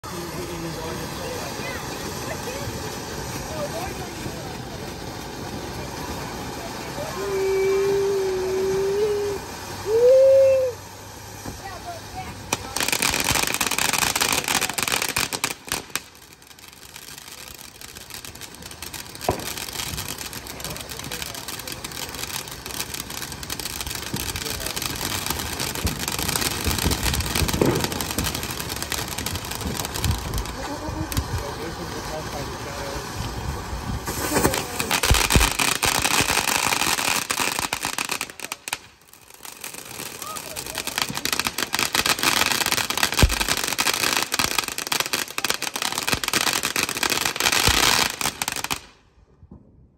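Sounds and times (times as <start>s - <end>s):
dense crackling: 0.0s - 49.0s
fireworks spraying sparks: 0.0s - 49.1s.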